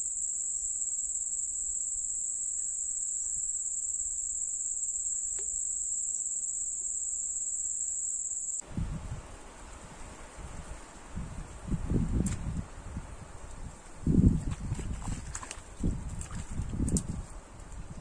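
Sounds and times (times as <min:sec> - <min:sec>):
insects chirring: 0:00.0 - 0:08.6
wind buffeting microphone: 0:08.6 - 0:18.0.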